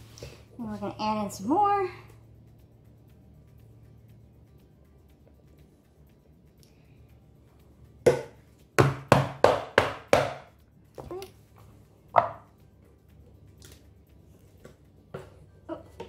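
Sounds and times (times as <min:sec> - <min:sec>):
wooden mould knocking on counter: 0:12.2 - 0:12.5.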